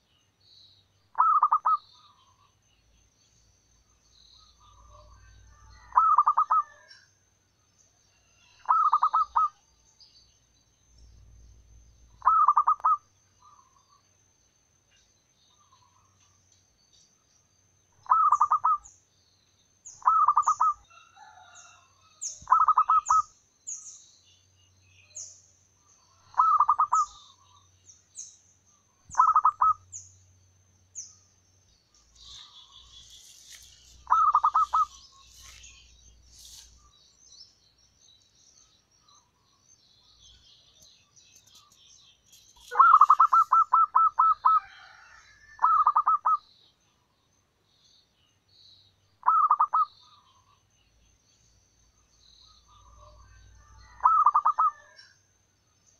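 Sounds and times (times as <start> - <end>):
dove cooing: 1.2 - 1.8, 5.8 - 6.9, 8.6 - 9.6, 12.2 - 13.0, 18.0 - 18.8, 26.2 - 27.2, 29.1 - 29.8, 34.0 - 35.0, 42.7 - 46.4, 49.2 - 49.9, 53.8 - 55.0
thin high chirping: 31.9 - 36.9, 41.4 - 44.4.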